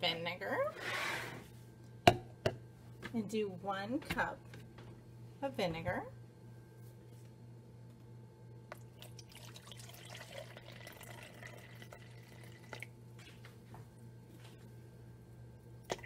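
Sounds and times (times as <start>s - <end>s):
liquid trickling into plastic cup: 8.7s - 13.4s.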